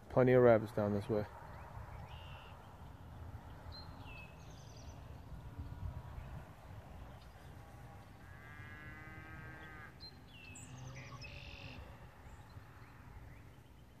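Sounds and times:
wind rumble on microphone: 1.2 - 14.0
drawn-out whine-like call: 1.4 - 2.9, 6.9 - 13.7
bird chirps: 1.5 - 5.2, 9.5 - 14.0.

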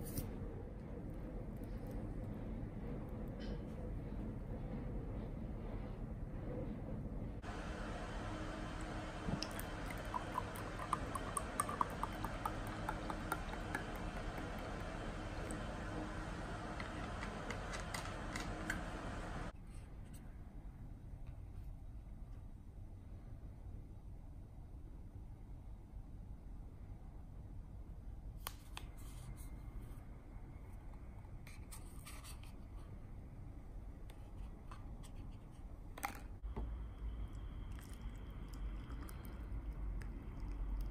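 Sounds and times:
steady low hiss: 7.0 - 40.9
juice pouring into a glass: 8.9 - 15.7, 37.3 - 40.9.

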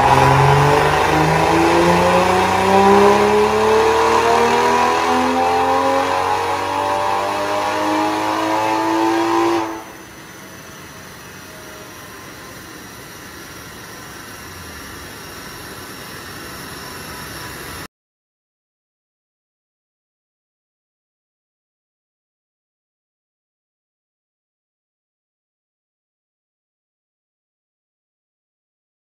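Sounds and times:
engine revving at full throttle: 0.0 - 17.9
falling whine of rollers: 0.0 - 17.9.

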